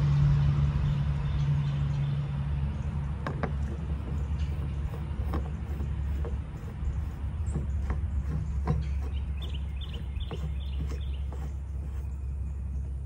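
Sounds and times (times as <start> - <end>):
fuel filters clicking and knocking: 2.8 - 12.2.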